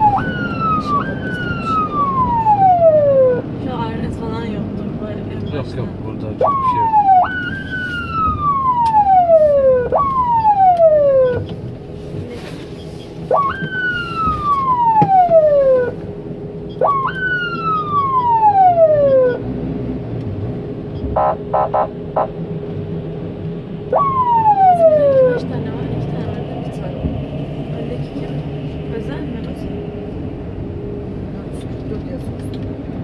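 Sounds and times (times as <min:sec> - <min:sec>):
emergency siren sweeps: 0:00.0 - 0:04.0, 0:05.6 - 0:12.0, 0:12.6 - 0:20.0, 0:20.6 - 0:31.6.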